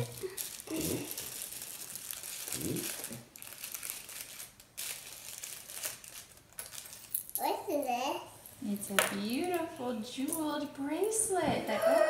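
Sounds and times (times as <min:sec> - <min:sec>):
tissue paper crinkling: 0:00.0 - 0:07.2.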